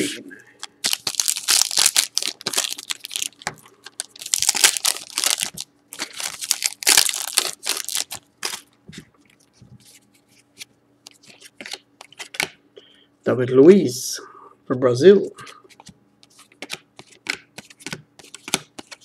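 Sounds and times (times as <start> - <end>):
foil wrapper tearing and crinkling: 0.8 - 8.7
clicks of cards handled: 15.7 - 19.0.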